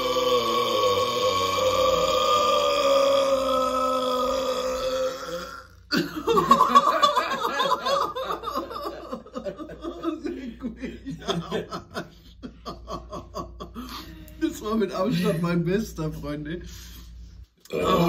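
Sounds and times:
man belching: 0.0s - 6.0s, 17.6s - 18.0s
men laughing loudly: 5.9s - 14.4s.

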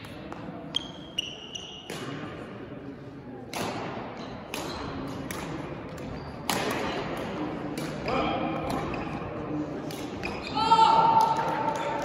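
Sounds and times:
shoes squeaking on court floor: 0.3s - 1.9s.

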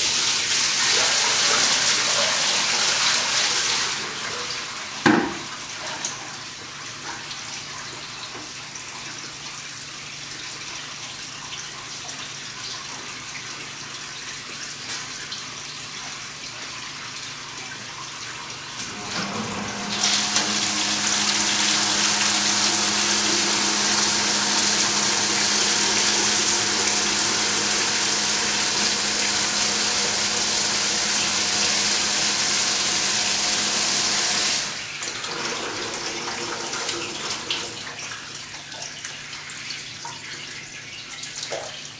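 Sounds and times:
coolant pump humming: 0.0s - 41.9s
coolant pouring into plastic bucket: 18.8s - 38.0s.

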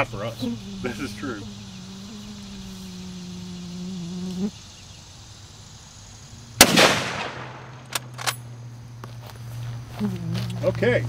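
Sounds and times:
rifle shot: 6.6s - 8.4s
sharp metallic clicks: 6.6s - 8.5s.

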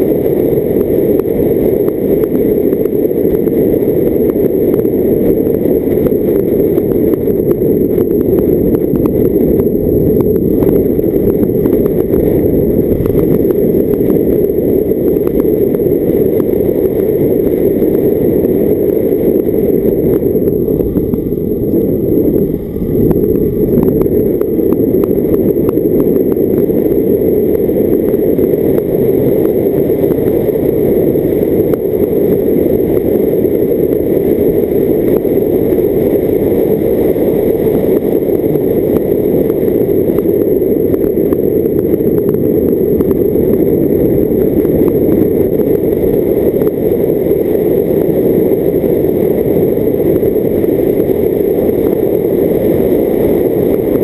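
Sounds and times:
car running noise: 0.0s - 54.0s
wind buffeting: 7.2s - 34.1s
road noise: 7.8s - 33.0s.

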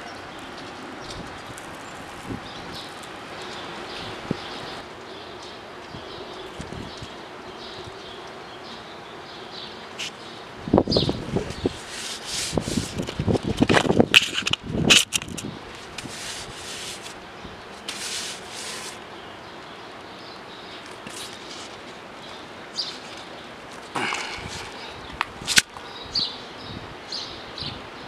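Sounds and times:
brush scrubbing wheel rim: 11.6s - 13.0s, 15.9s - 17.2s, 17.9s - 19.0s.

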